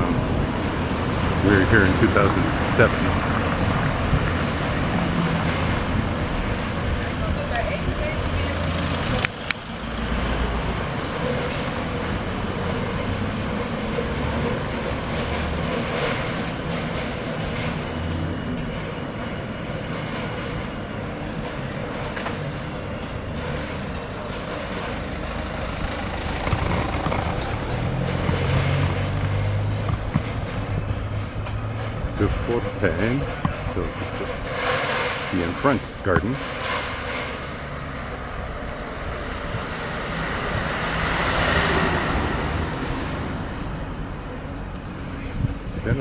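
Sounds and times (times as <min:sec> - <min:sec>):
bicycle tyres rumbling over bricks: 0:22.1 - 0:32.3
wind on microphone: 0:45.1 - 0:46.0.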